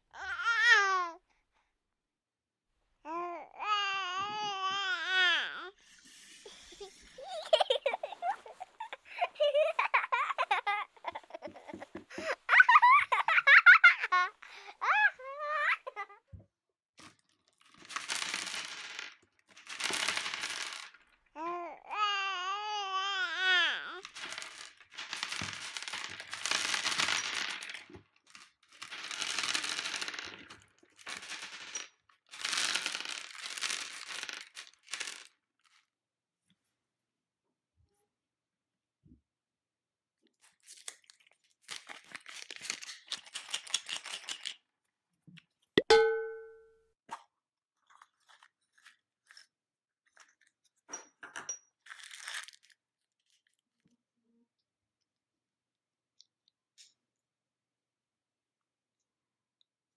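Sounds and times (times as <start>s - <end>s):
plastic candy bag crinkling: 17.0s - 21.2s, 24.0s - 35.9s, 40.4s - 44.6s, 47.8s - 50.7s, 51.8s - 53.8s
sweets clattering in a plastic bowl: 17.0s - 21.2s, 24.0s - 35.9s, 51.3s - 52.8s.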